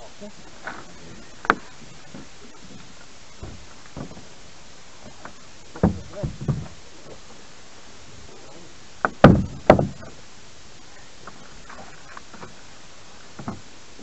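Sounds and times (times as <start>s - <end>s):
knocks against boat hull: 1.5s - 4.3s, 5.0s - 6.8s, 9.0s - 10.2s, 13.4s - 13.6s.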